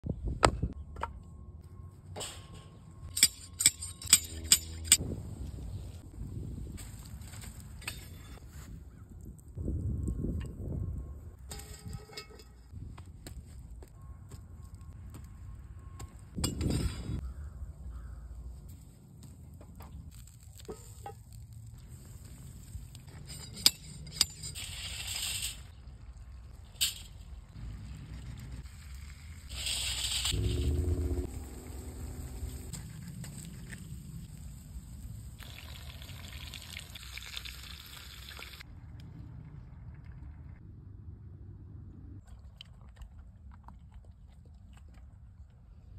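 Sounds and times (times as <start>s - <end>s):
low wind rumble on microphone: 5.0s - 13.8s.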